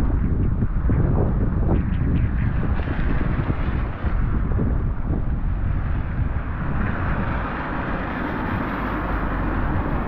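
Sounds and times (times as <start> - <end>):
wind rumbling on microphone: 0.0 - 10.0
car tyres hissing on wet road: 5.8 - 10.0.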